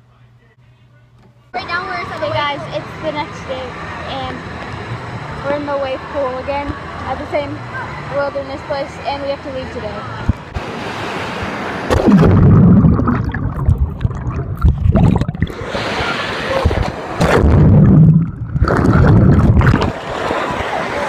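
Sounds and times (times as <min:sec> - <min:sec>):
water sloshing and gurgling: 0:10.5 - 0:20.8.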